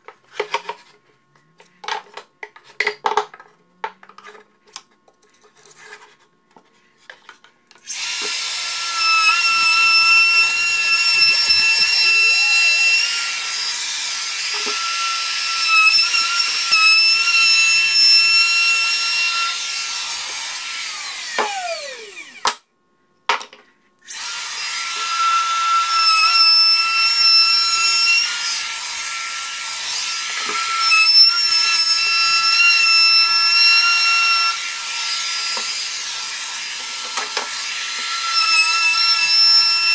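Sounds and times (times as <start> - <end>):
router whining while cutting wood: 7.8 - 22.6, 24.0 - 39.9
router winding down: 7.8 - 22.6.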